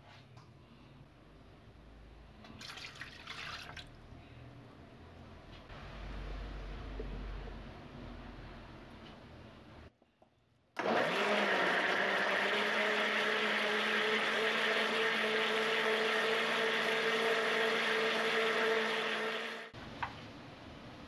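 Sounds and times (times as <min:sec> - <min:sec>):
blender motor running: 0:10.8 - 0:19.7.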